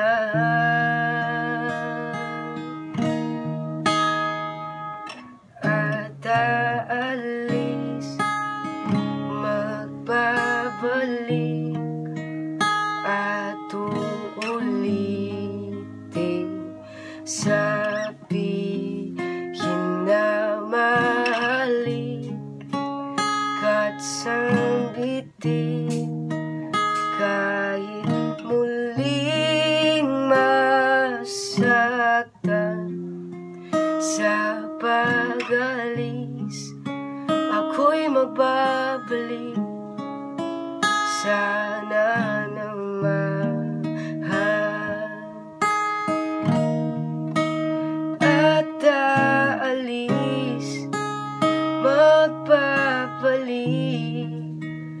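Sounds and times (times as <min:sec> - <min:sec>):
man singing: 0:00.0 - 0:02.8, 0:05.6 - 0:08.3, 0:09.2 - 0:11.9, 0:13.0 - 0:22.4, 0:23.6 - 0:26.1, 0:27.0 - 0:33.0, 0:33.9 - 0:36.8, 0:37.4 - 0:39.6, 0:41.2 - 0:45.5, 0:48.2 - 0:51.0, 0:51.8 - 0:54.5
acoustic guitar strumming: 0:00.0 - 0:55.0.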